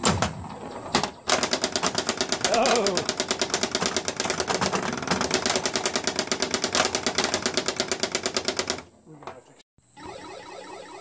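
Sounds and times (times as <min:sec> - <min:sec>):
pinball machine clicking: 0:00.0 - 0:08.9.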